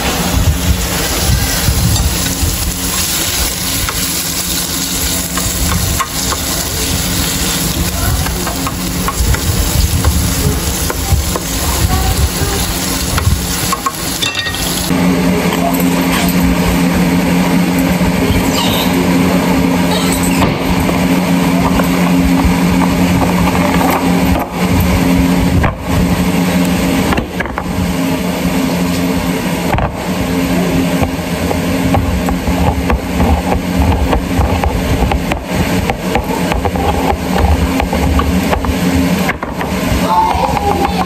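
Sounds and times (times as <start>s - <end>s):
rushing air: 0.0s - 15.4s
electric motor humming: 0.0s - 41.0s.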